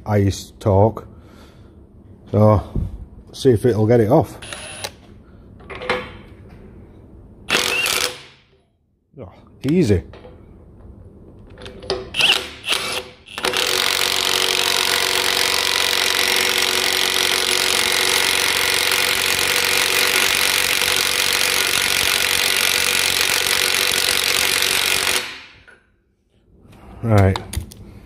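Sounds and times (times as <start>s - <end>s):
cordless impact wrench running: 4.4s - 5.0s, 7.5s - 8.3s, 12.2s - 25.5s.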